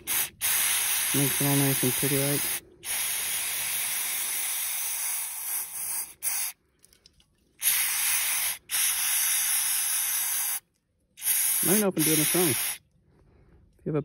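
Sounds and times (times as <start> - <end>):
aerosol spray can hissing: 0.0 - 6.6, 7.6 - 10.6, 11.2 - 12.8.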